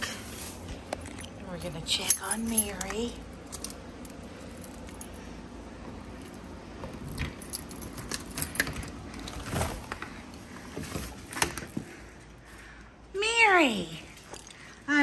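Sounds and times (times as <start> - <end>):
keys jangling: 1.1 - 5.3, 7.0 - 9.3.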